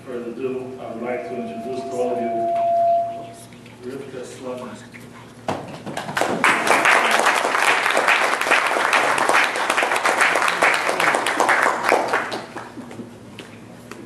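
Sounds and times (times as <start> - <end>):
audience applauding: 6.2 - 12.8.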